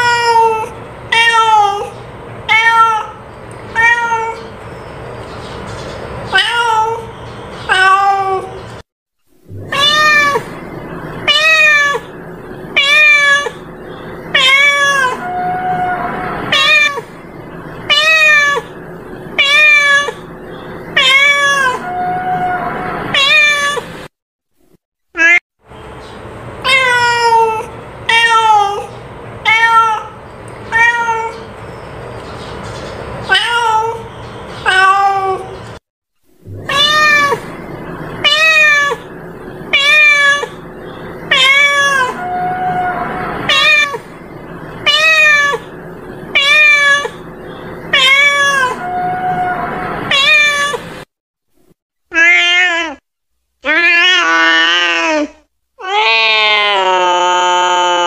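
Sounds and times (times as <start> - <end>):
cat meowing: 0.0 - 4.5, 6.3 - 7.1, 7.7 - 8.6, 9.5 - 10.6, 11.2 - 13.6, 14.3 - 17.1, 17.9 - 18.7, 19.4 - 20.3, 21.0 - 23.9, 26.6 - 31.5, 33.3 - 35.6, 36.5 - 37.6, 38.2 - 40.6, 41.2 - 44.1, 44.8 - 45.7, 46.3 - 47.2, 47.8 - 50.9.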